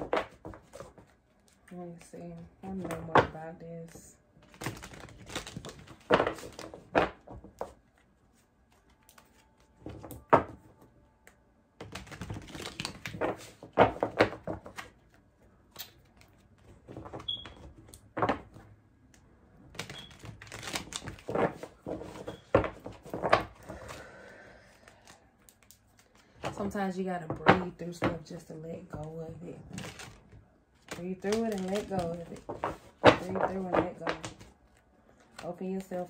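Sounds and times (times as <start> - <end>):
cards being shuffled: 0.0 - 18.6, 19.7 - 24.0, 29.7 - 36.0.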